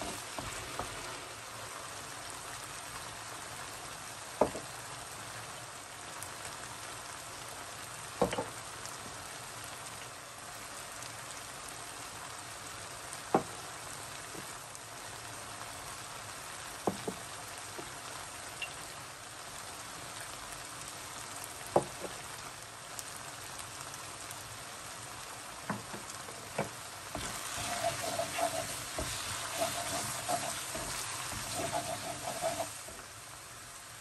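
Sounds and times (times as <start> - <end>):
wooden spoon stirring and scraping: 0.0 - 1.3, 27.2 - 33.1
sauce sizzling in a wok: 0.0 - 34.0.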